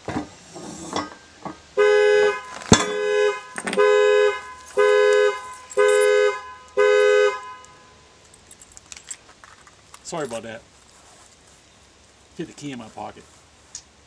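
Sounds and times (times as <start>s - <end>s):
car alarm horn blasts: 1.8s - 8.0s
handling noise: 2.2s - 11.6s.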